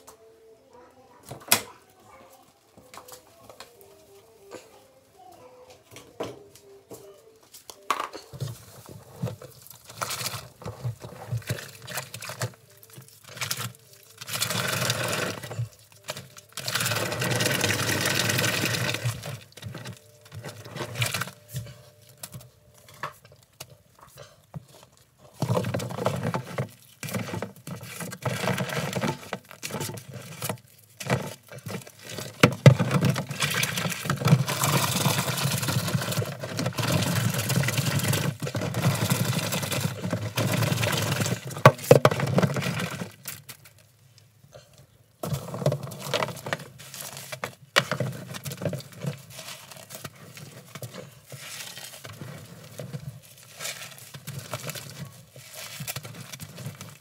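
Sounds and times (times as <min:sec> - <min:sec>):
soapy water sloshing and splashing: 0:09.3 - 0:21.4, 0:25.4 - 0:43.6, 0:45.2 - 0:57.0.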